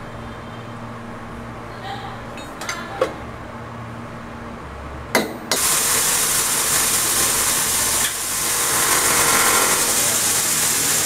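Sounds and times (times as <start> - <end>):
handheld power tool running: 5.6 - 11.0.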